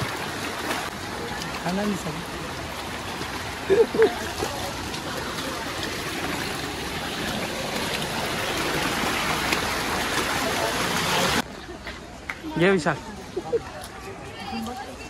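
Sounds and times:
running water rushing: 0.0s - 11.5s.

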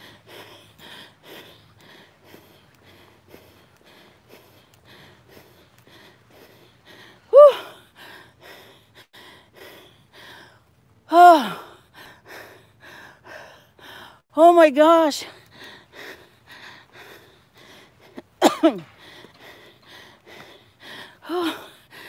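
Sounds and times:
woman breathing hard: 0.0s - 14.3s, 15.3s - 22.0s
woman sighing: 7.3s - 7.7s, 21.2s - 21.7s.

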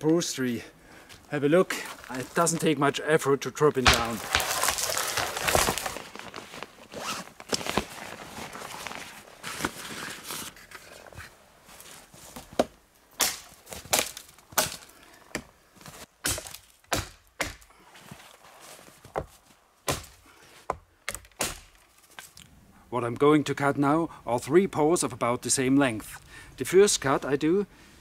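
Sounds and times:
axe chopping into tree trunk: 3.8s - 5.8s, 12.6s - 14.8s, 16.2s - 17.7s, 19.9s - 20.2s, 21.1s - 21.8s
rustling: 3.8s - 12.6s.

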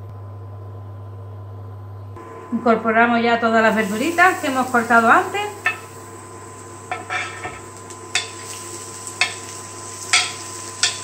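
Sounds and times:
vegetables sizzling in oil: 3.4s - 11.0s
spatula scraping a plate: 6.9s - 7.6s.

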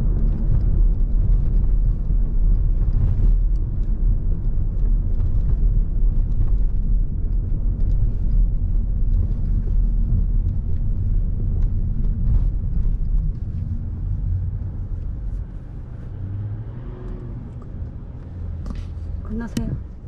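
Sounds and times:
car driving rumble: 0.0s - 20.0s
faint light ticks: 0.1s - 15.5s.

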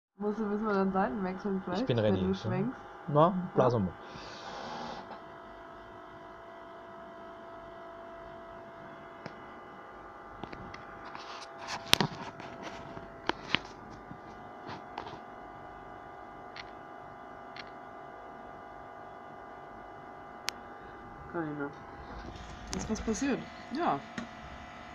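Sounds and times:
electrical hum: 0.2s - 24.9s
breath blown into jar: 4.0s - 5.2s.

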